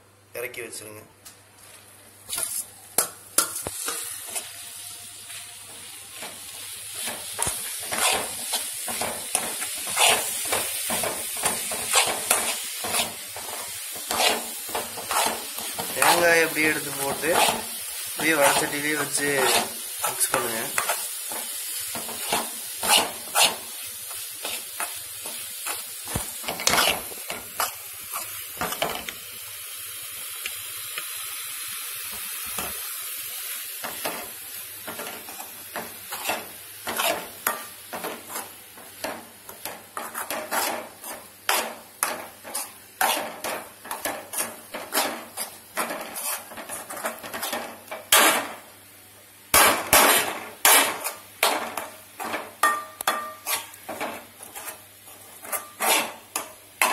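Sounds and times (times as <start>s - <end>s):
steady sizzle: 1.5s - 56.9s
spatula scraping and knocking: 7.0s - 29.1s, 34.9s - 48.4s, 49.6s - 56.9s.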